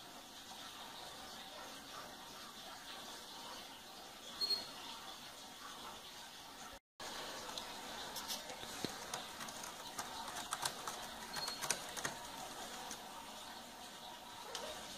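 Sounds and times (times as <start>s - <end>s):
cat scratching cardboard: 8.2s - 13.0s.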